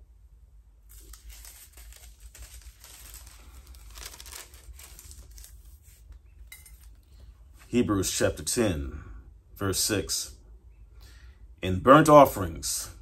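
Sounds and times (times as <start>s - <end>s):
thin pages rustling as turned: 0.9s - 7.7s.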